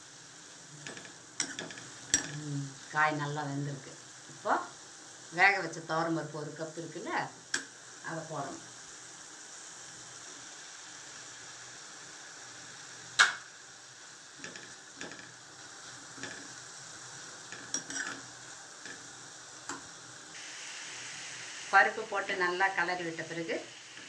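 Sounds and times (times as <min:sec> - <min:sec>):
vegetables sizzling: 0:00.0 - 0:24.0
spoon scraping and tapping pan: 0:00.8 - 0:02.4, 0:14.4 - 0:15.4, 0:16.1 - 0:16.6, 0:17.4 - 0:19.1
metal clink: 0:17.5 - 0:18.2.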